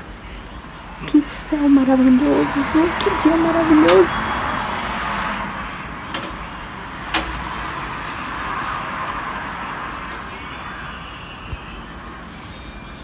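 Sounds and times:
road traffic tyre hiss: 0.0 - 13.0
sharp clicks: 6.1 - 6.4, 7.1 - 7.4.

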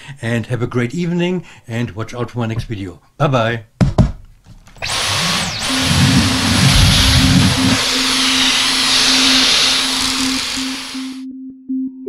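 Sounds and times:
stick vacuum running: 4.8 - 11.2.

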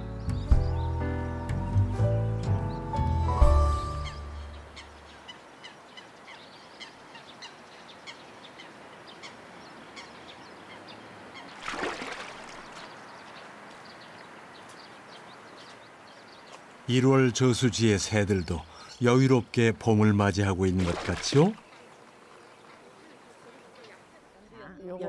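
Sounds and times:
background music: 0.0 - 4.9
birds chirping: 0.0 - 25.0.

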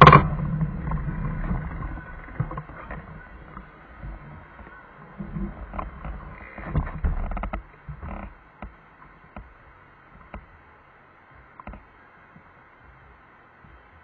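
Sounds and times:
passing vehicles rumbling: 0.0 - 7.2.

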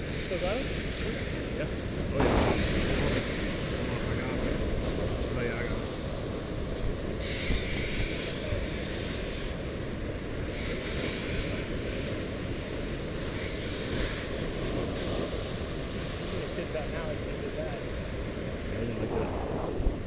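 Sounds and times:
wind rumble on microphone: 0.0 - 20.0
surf breaking over rocks: 0.4 - 7.1, 13.8 - 20.0.

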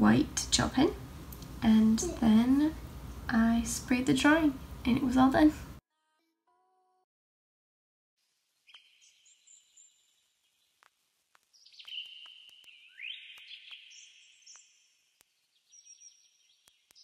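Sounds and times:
birdsong trills: 8.7 - 10.3, 11.6 - 17.0.

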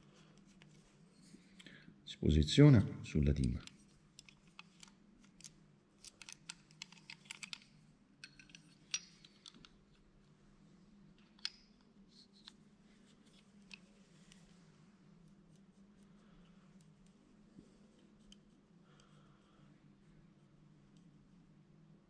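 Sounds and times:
metal clicks and taps: 11.2 - 11.8.

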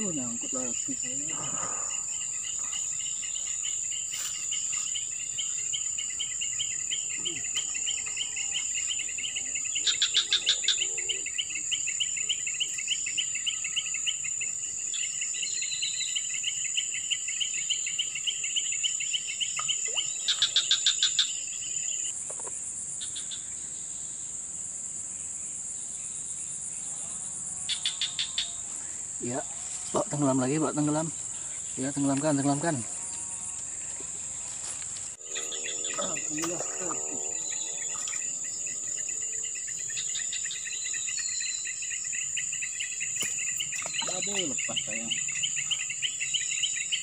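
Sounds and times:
insect pulsing trill: 0.0 - 22.1, 35.1 - 47.0
insects high-pitched drone: 0.0 - 24.4, 25.2 - 47.0
rapid insect pulse trains: 35.2 - 47.0.

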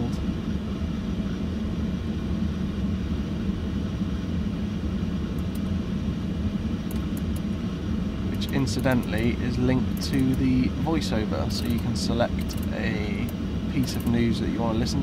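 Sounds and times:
car engine idling in cabin: 0.0 - 15.0
faint controller clicks: 5.3 - 5.7, 6.8 - 7.5, 8.4 - 10.5, 11.5 - 14.2.

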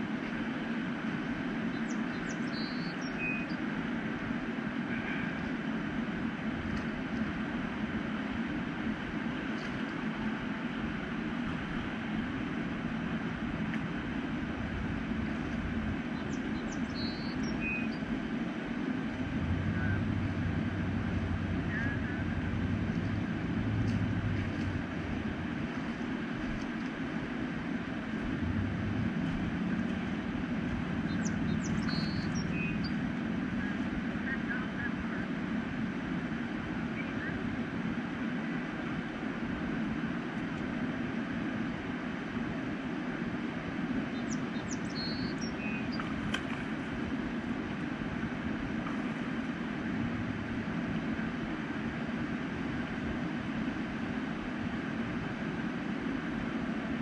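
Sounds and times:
low rushing outdoor noise: 0.0 - 57.0
faint high chirps: 2.2 - 3.6, 31.1 - 33.0.

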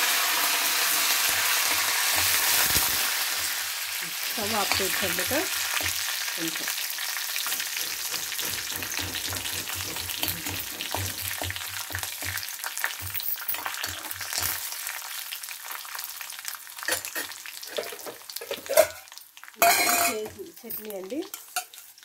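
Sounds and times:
oil sizzling with frying spices: 0.0 - 22.0
steel ladle stirring and scraping: 4.4 - 6.1, 7.3 - 14.6, 16.9 - 19.0.

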